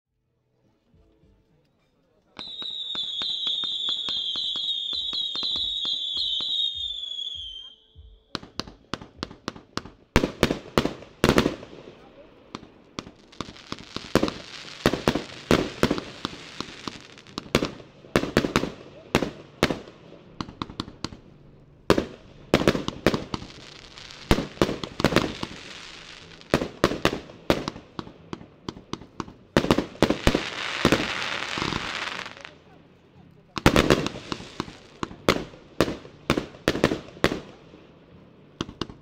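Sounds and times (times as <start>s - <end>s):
hissing crackle of firework shells: 1.9s - 39.0s
firework aerial bursts: 2.4s - 39.0s.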